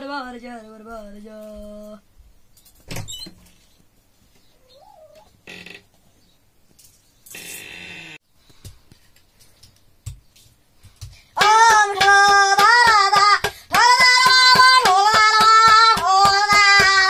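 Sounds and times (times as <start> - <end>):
child singing in high voice: 11.4 - 17.0
hand beating a steel plate: 11.4 - 17.0.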